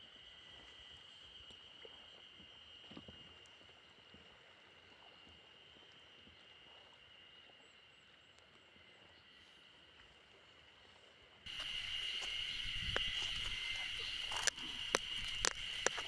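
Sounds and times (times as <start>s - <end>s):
cicadas chorus: 0.0s - 8.0s, 11.5s - 16.0s.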